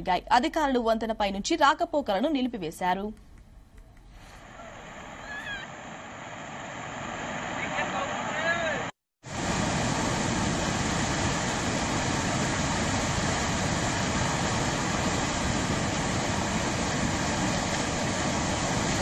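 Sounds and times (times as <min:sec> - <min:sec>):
rushing floodwater: 0:04.4 - 0:19.0.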